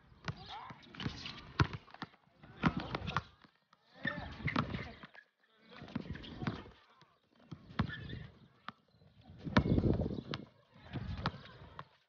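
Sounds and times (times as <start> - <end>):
basketball bouncing on hard court: 1.0 - 2.0, 4.0 - 5.0, 7.5 - 8.8, 9.5 - 11.9.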